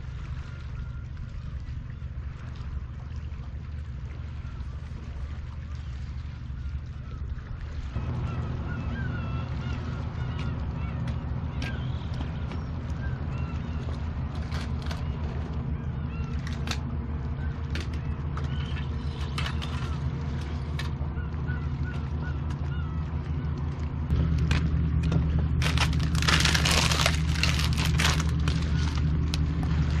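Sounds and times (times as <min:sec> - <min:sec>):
low motor hum: 0:00.0 - 0:30.0
faint chirping calls: 0:08.0 - 0:14.0
rustling: 0:25.6 - 0:29.4.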